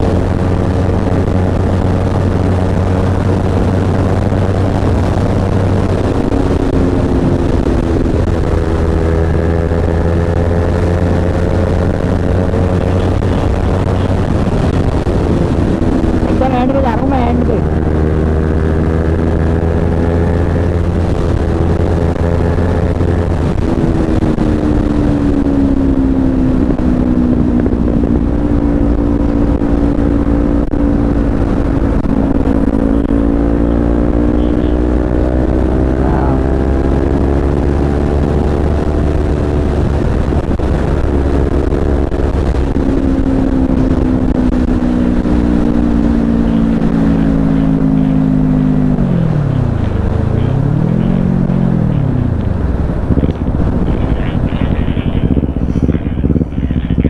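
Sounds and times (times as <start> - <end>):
motorcycle engine cruising: 0.0 - 57.0
wind rumble on microphone: 0.0 - 57.0.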